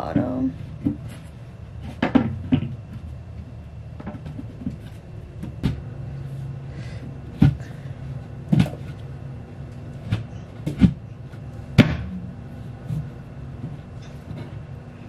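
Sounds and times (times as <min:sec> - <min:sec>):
steady low hum: 0:00.0 - 0:15.0
furniture panels knocking: 0:01.8 - 0:03.0.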